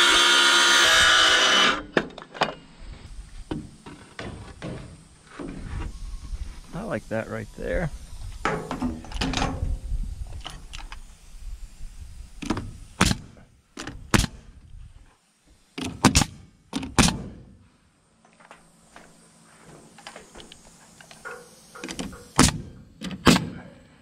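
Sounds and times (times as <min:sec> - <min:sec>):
nail gun shots into wood: 0:12.4 - 0:14.4, 0:15.8 - 0:17.5, 0:21.8 - 0:23.6.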